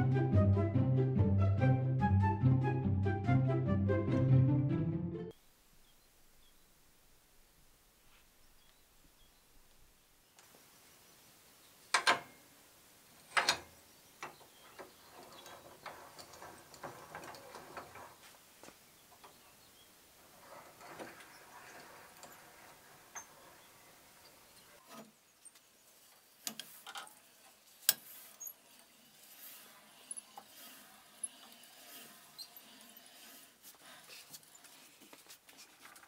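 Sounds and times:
steel strip scraping: 26.4s - 34.8s.

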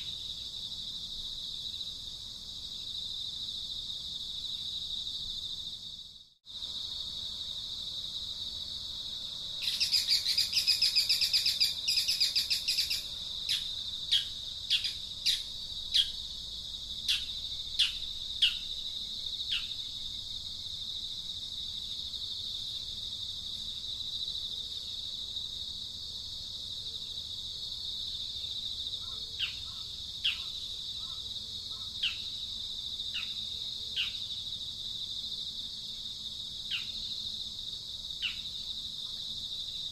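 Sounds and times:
high-pitched insect drone: 9.6s - 16.4s.

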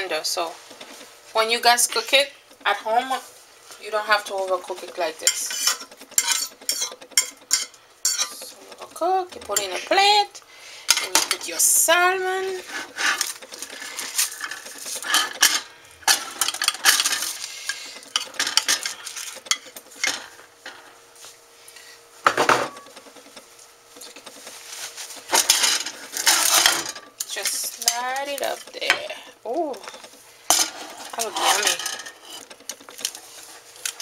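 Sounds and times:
metal utensils scraping pan and plate: 4.1s - 8.9s, 9.5s - 10.2s, 12.4s - 20.9s, 25.3s - 29.2s, 29.9s - 32.5s.

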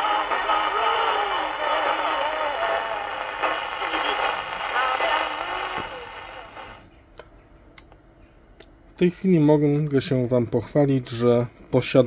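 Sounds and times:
radio voice: 0.0s - 6.8s
static hiss: 0.0s - 6.9s.

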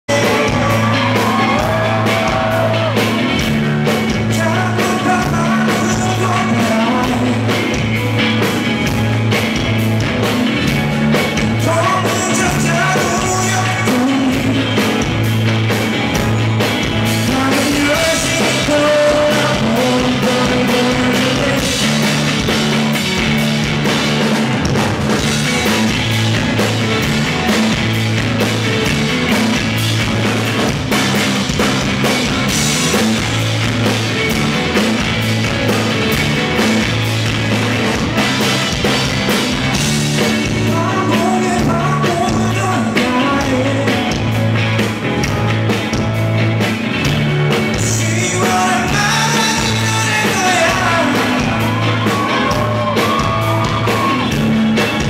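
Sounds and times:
person singing: 0.0s - 3.2s, 4.1s - 7.9s, 11.4s - 15.1s, 17.1s - 22.4s, 40.2s - 44.4s, 47.7s - 54.3s
drum kit: 0.0s - 55.0s
electric guitar: 0.0s - 55.0s.

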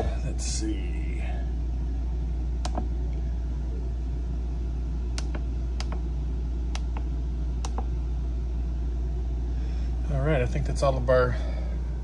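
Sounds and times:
steady low rumble: 0.0s - 12.0s
push buttons clicking: 2.6s - 2.9s, 5.2s - 6.0s, 6.8s - 7.9s.

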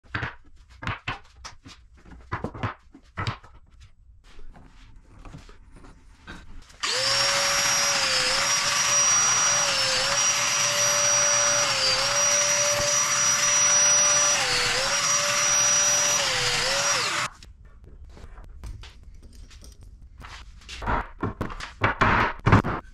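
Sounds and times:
dust extractor running: 6.8s - 17.3s
power joiner whining: 6.8s - 17.3s.

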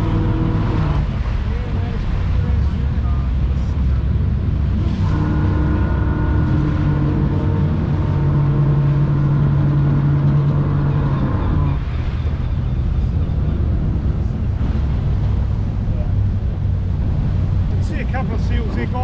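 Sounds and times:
boat engines rumbling: 0.0s - 19.0s.

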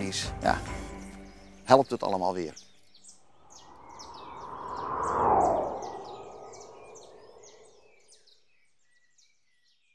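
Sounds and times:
bird chirping rapidly: 1.3s - 8.1s
whoosh with falling sweep: 3.6s - 7.8s.

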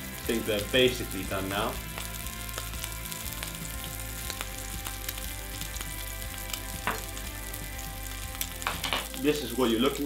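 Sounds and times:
crab legs sizzling in butter: 0.0s - 10.0s.

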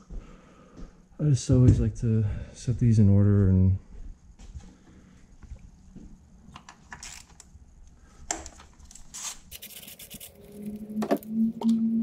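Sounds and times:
ignition coils clicking and knocking: 6.5s - 7.6s, 8.2s - 10.3s.

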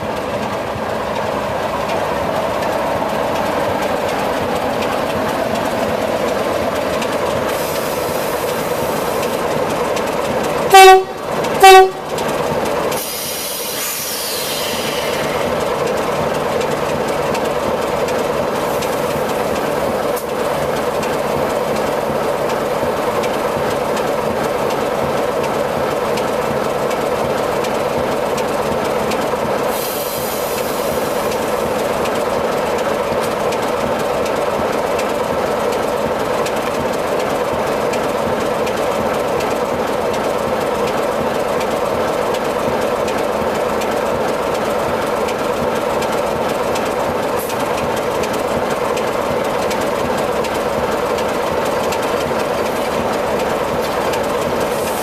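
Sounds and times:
diesel locomotive engine idling: 0.0s - 55.0s
air hiss: 7.5s - 9.3s, 13.0s - 15.6s, 29.7s - 31.7s.

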